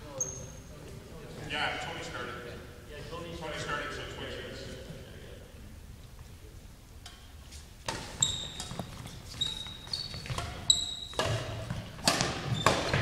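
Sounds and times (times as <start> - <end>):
sneakers squeaking: 0.0 - 1.0, 7.1 - 13.0
racket hitting shuttlecock: 7.1 - 13.0.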